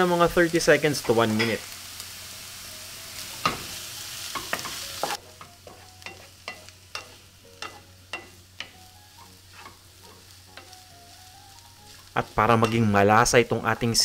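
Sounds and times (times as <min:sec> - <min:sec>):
pork sizzling in a pan: 0:00.0 - 0:14.0
spatula scraping a pan: 0:03.1 - 0:11.2.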